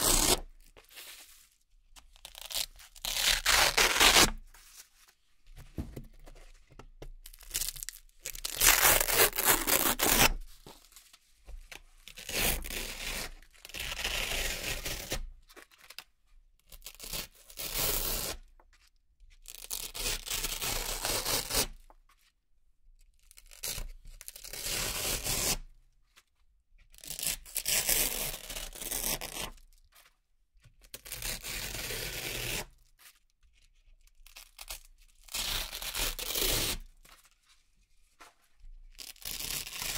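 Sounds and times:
velcro ripping: 0:00.0 - 0:00.4, 0:02.2 - 0:04.4, 0:07.5 - 0:10.4, 0:35.3 - 0:36.8.

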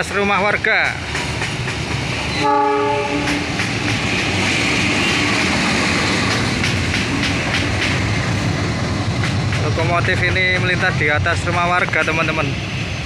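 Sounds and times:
locomotive rumbling: 0:00.0 - 0:13.0
wheels clattering on rails: 0:00.1 - 0:02.4, 0:03.1 - 0:12.6
locomotive horn blast: 0:02.4 - 0:03.4.

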